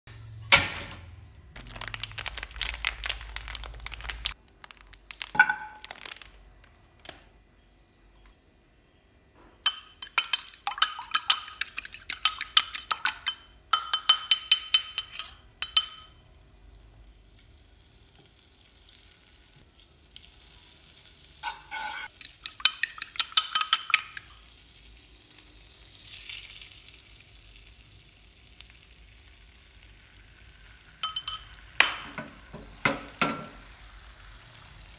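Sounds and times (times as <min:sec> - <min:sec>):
utensil clinking against bowl: 0:09.6 - 0:16.2, 0:21.4 - 0:24.3, 0:31.0 - 0:33.5
egg sizzling in frying pan: 0:15.2 - 0:34.9.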